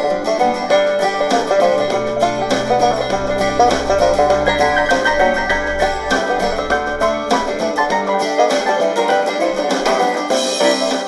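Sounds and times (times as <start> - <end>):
bass line: 0.0 - 8.8
bluegrass music through speaker: 0.0 - 11.0
rapidly plucked banjo: 0.0 - 11.0.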